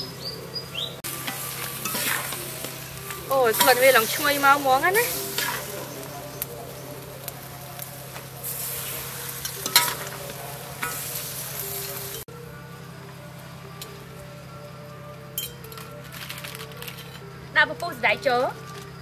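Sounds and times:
food sizzling in a wok: 0.0 - 17.4
metal utensils scraping a pan: 1.1 - 6.9, 8.0 - 12.3, 15.4 - 17.3.

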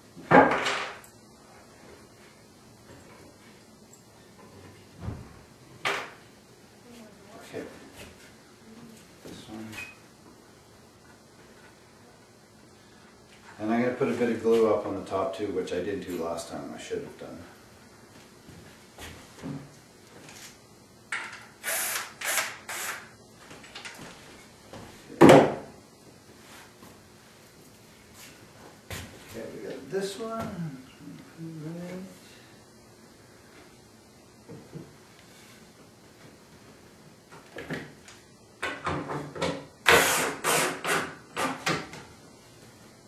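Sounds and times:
power drill driving screws into wood: 21.6 - 23.1, 39.8 - 41.6.

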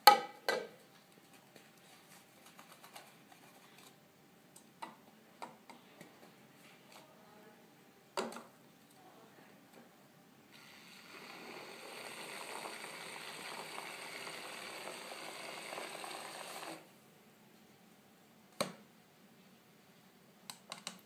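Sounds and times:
mixer bottle motor spinning: 10.5 - 16.9.

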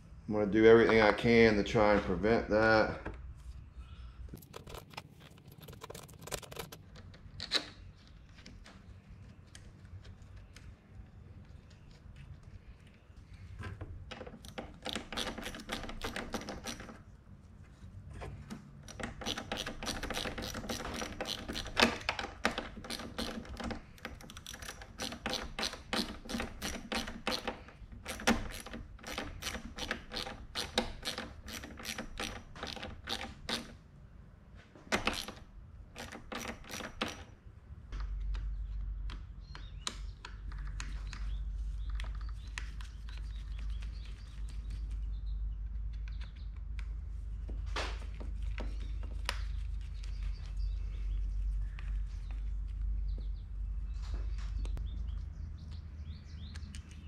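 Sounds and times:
hand ratchet clicking: 18.9 - 33.7.

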